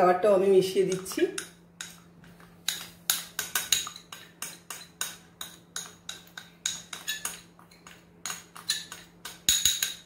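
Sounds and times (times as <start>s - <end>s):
ceramic bowl clinking: 2.7s - 10.0s.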